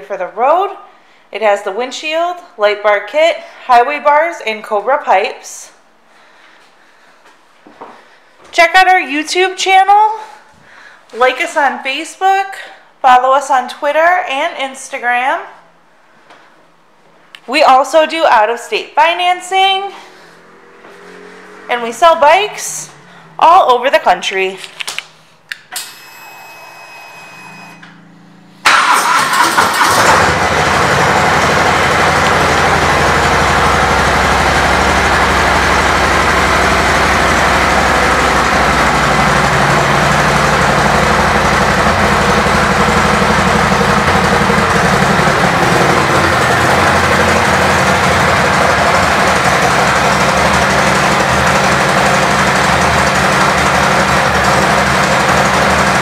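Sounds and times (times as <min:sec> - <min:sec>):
motorcycle engine starting and idling: 0:19.8 - 0:26.2, 0:27.5 - 0:56.0
faint hum: 0:25.2 - 0:28.7.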